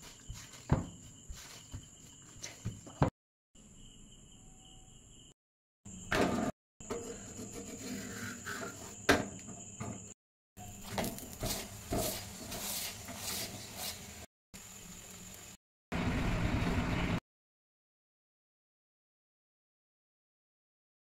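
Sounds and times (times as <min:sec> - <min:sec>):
metal spatula scraping on iron pan: 0:06.2 - 0:09.0, 0:10.7 - 0:14.3.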